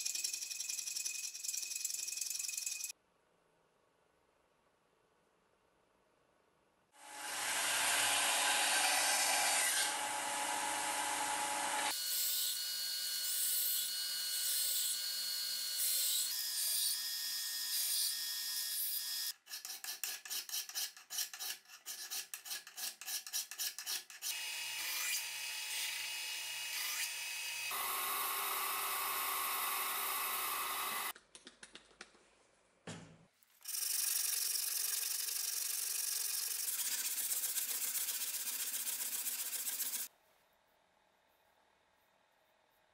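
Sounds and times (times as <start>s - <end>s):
hand file rasping: 19.4s - 24.4s, 34.2s - 40.1s
blade rubbing on sanding block: 35.2s - 40.1s.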